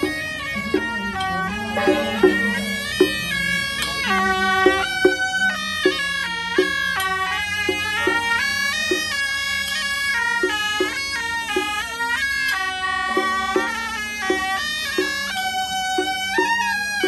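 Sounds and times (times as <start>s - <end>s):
low drone: 0.0s - 6.4s
reedy horn melody: 0.0s - 9.4s, 10.1s - 15.4s
regular beat: 0.0s - 17.0s.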